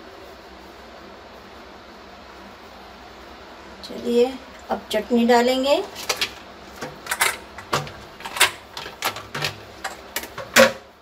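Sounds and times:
utensils and dishes clicking: 5.9s - 10.8s.

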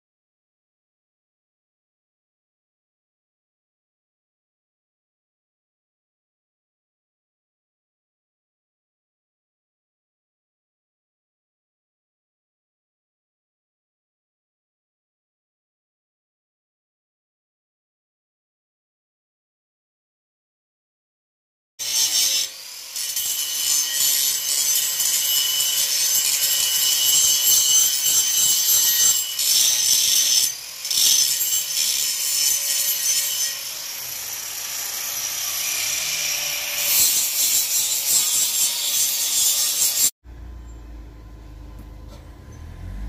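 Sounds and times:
angle grinder grinding steel: 21.8s - 43.0s.

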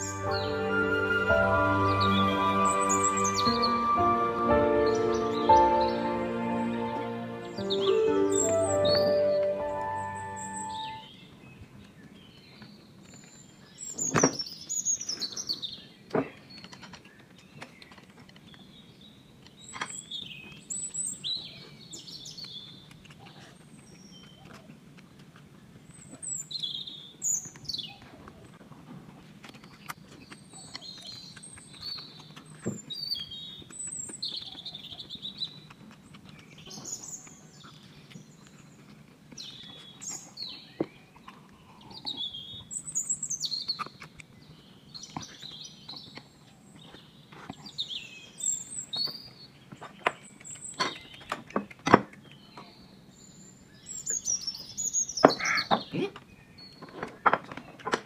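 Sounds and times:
birds chirping and whistling: 0.0s - 11.3s, 53.2s - 57.7s.

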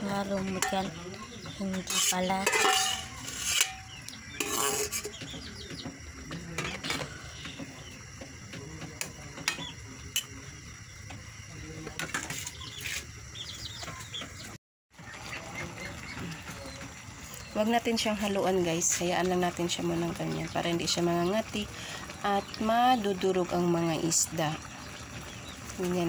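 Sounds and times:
spatula scraping metal wok: 1.6s - 5.3s, 12.0s - 13.2s.

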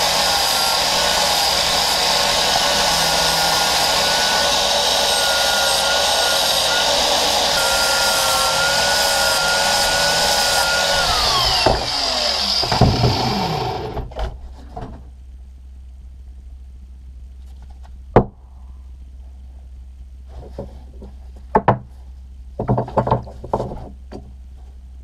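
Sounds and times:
grinder winding down: 0.0s - 14.0s
power grinder grinding metal: 0.0s - 14.0s.

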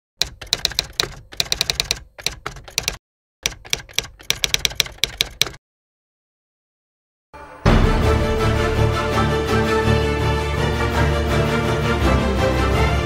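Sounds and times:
keyboard typing clicks: 0.2s - 5.6s.

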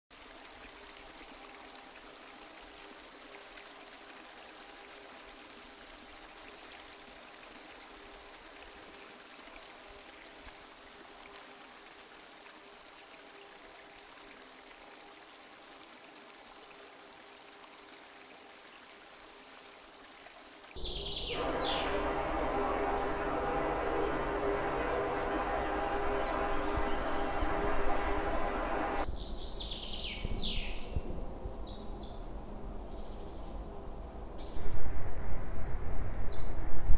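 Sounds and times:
faint rushing hiss: 19.4s - 29.7s
faint steady tones: 20.8s - 29.1s
loud abrupt sound: 20.8s - 29.1s.

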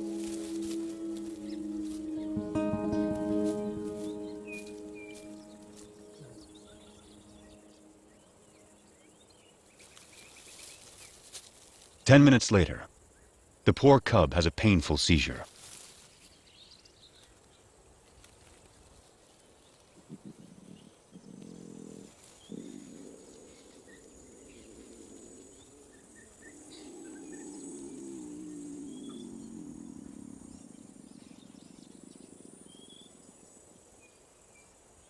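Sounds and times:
faint bird chirps: 0.0s - 11.2s, 19.4s - 34.8s
insect hiss: 0.0s - 13.7s, 15.0s - 35.0s
lion cub groaning: 20.0s - 31.7s.

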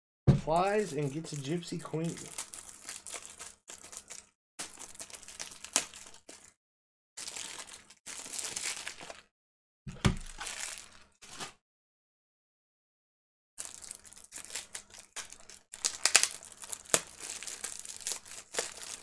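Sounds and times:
card wrappers crinkling and tearing: 0.5s - 6.6s, 7.2s - 9.3s, 10.2s - 11.5s, 13.6s - 19.0s.

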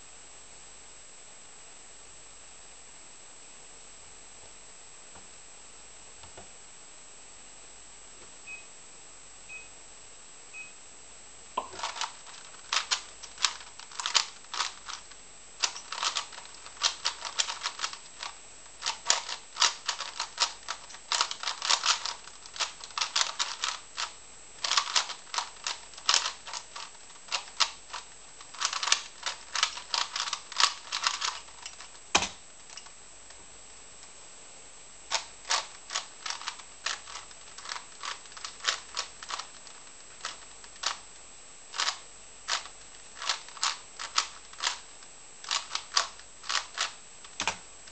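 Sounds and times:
plastic cube clicking: 11.6s - 32.4s, 35.1s - 41.0s, 41.8s - 47.9s.

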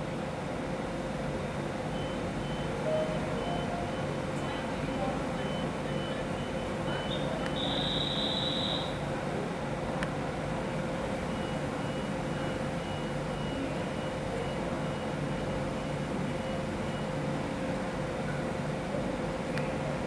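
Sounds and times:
electric trains humming: 0.0s - 16.4s
faint pulsing high tone: 2.0s - 9.0s.

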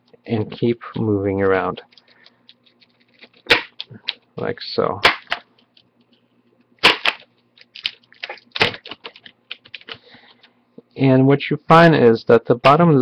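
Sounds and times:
plastic bezel cracking: 6.8s - 10.0s.

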